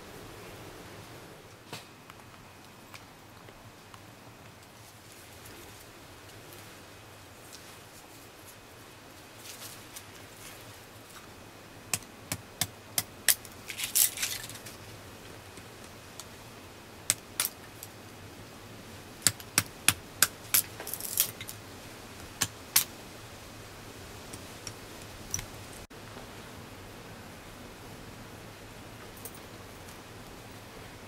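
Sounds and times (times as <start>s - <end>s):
rustling of sticks and leaves: 0.0s - 31.0s
dry twigs snapping: 12.0s - 14.9s, 17.1s - 17.9s, 19.2s - 21.6s, 22.4s - 22.9s.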